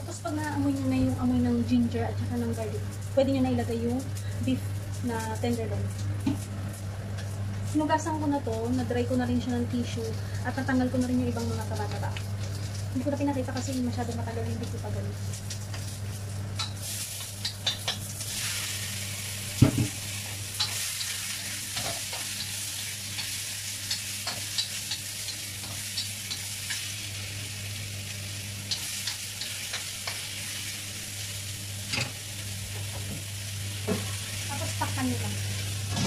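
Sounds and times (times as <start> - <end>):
meat sizzling in oil: 10.2 - 36.0.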